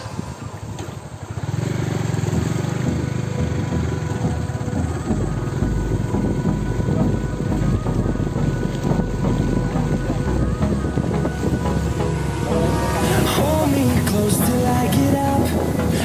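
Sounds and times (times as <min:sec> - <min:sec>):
deeper low rumble: 0:02.8 - 0:14.3.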